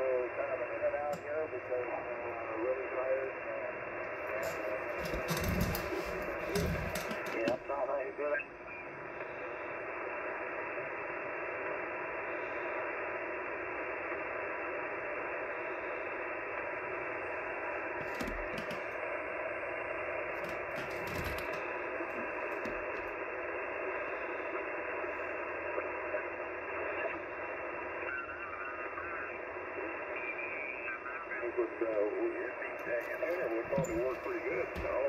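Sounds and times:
radio band noise hiss: 0.0 - 35.0.

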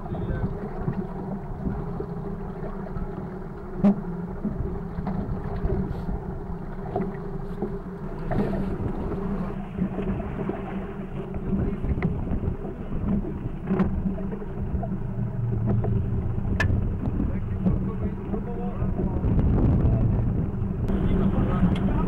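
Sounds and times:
wind buffeting microphone: 0.0 - 2.1, 8.2 - 22.0
outboard engine idling: 0.0 - 22.0.

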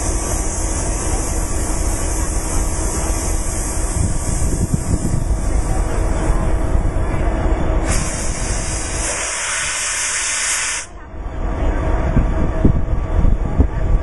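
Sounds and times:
steady low rumble: 0.0 - 14.0
compressed air hissing: 7.8 - 11.0.

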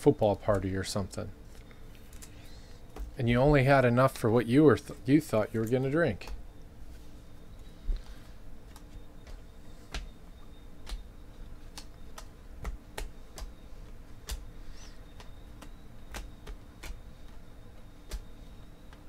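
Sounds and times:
trading cards snapping: 10.8 - 17.4, 18.0 - 18.3.

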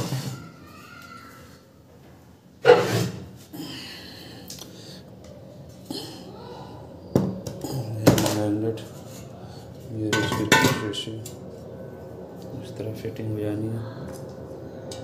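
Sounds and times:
metal scraping on table: 2.6 - 3.4.

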